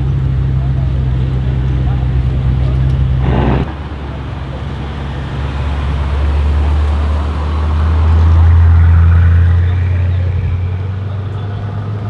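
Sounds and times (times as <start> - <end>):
car exhaust at low revs: 0.0 - 12.0
another car's exhaust note: 3.2 - 4.4.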